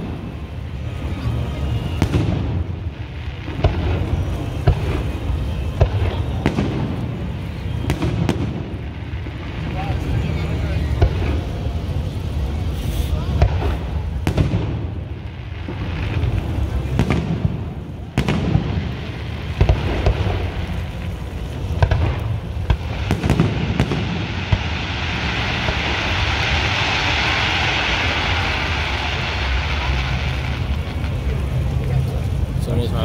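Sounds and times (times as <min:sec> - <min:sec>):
fireworks bursting with booms: 0:00.0 - 0:32.6
steady hiss: 0:00.0 - 0:33.0.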